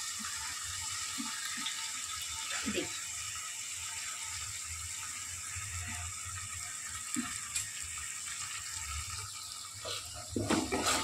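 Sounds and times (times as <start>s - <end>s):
vegetables sizzling in hot oil: 0.0s - 11.0s.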